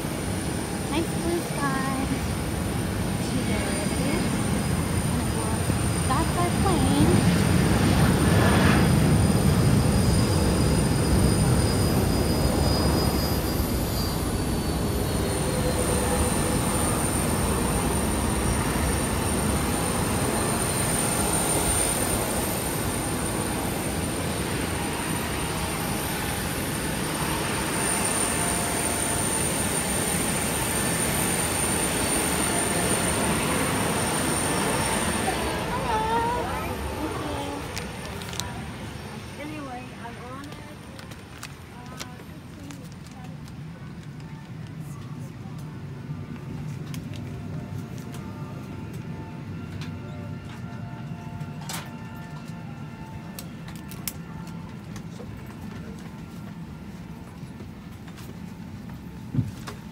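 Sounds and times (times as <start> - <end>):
high jet whine: 0.0 - 42.0
jet aircraft rumble: 0.0 - 50.6.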